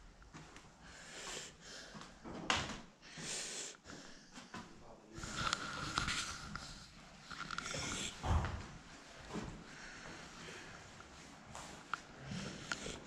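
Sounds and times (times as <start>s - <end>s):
person breathing close to microphone: 0.8s - 2.3s, 3.0s - 13.0s
footsteps: 4.4s - 13.0s.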